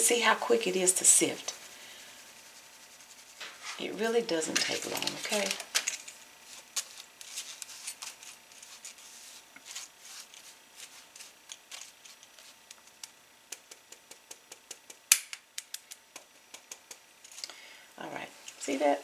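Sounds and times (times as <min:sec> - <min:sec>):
spatula scraping mesh sieve: 0:06.4 - 0:12.8.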